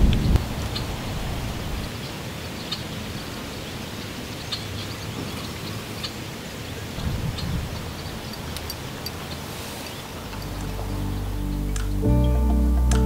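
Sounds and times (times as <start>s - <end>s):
wind buffeting microphone: 0.0s - 2.0s, 6.9s - 11.3s
outdoor hiss: 0.2s - 12.7s.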